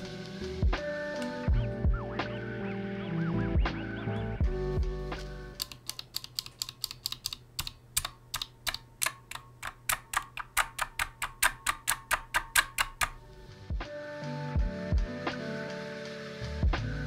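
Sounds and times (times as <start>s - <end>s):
keyboard switch clicking: 5.2s - 13.2s.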